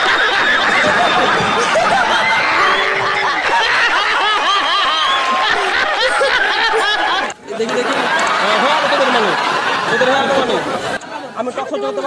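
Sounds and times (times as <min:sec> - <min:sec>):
man laughing loudly: 0:00.0 - 0:09.3
people clapping: 0:00.0 - 0:09.8
audience laughing: 0:00.0 - 0:11.5.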